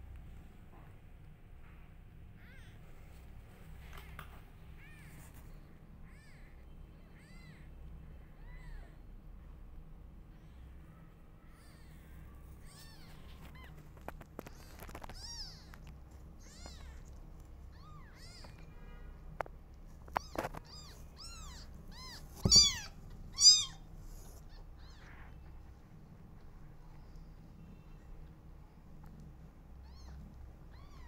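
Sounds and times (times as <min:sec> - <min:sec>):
kittens mewing: 0:06.0 - 0:09.1, 0:11.4 - 0:18.7, 0:20.0 - 0:25.6, 0:29.2 - 0:31.0.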